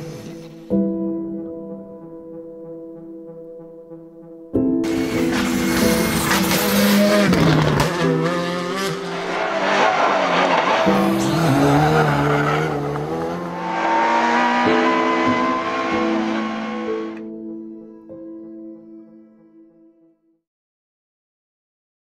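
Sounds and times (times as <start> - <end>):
background music: 0.0 - 20.4
rally car engine revving: 4.9 - 17.2.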